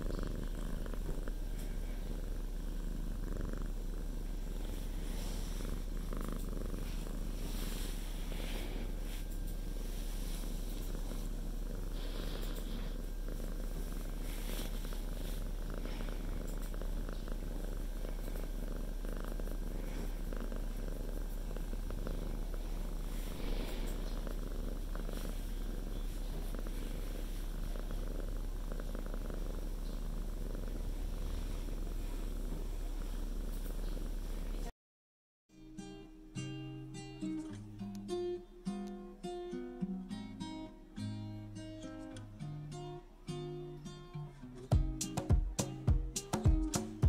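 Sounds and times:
cat purring: 0.0 - 34.7.

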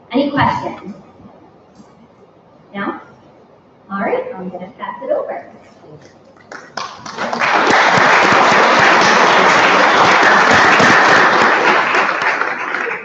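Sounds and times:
audience applauding: 6.4 - 13.0.

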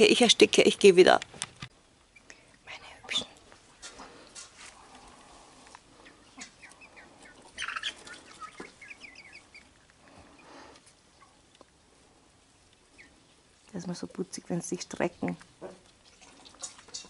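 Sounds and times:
rustle: 0.0 - 17.0
chicks peeping: 4.9 - 11.6, 12.6 - 13.7.

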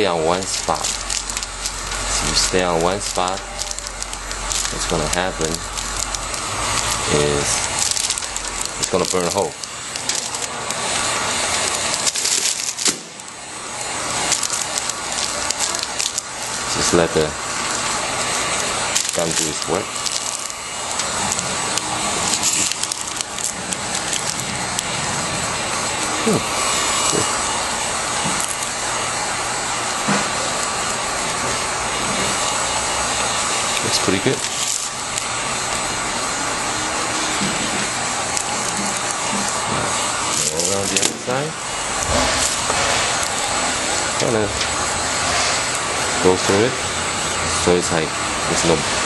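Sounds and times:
shrink film crackling: 0.0 - 48.9
heat gun blowing air: 0.0 - 49.0.

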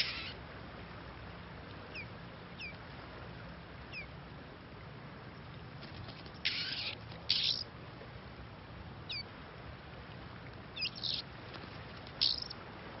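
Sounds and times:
bird harsh rasping calls: 0.0 - 0.4, 6.4 - 7.6, 10.8 - 11.2, 12.2 - 12.5.

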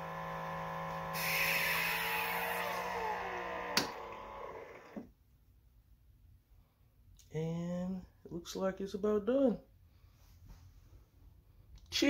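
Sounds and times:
pump humming: 0.0 - 5.0.

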